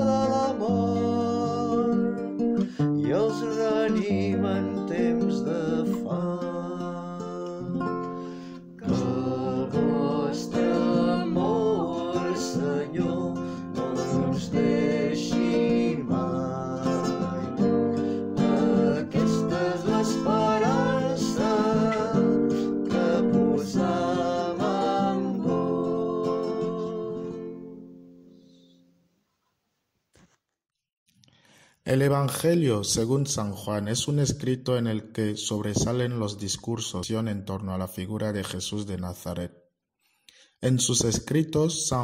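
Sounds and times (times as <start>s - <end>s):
acoustic guitar music: 0.0s - 29.1s.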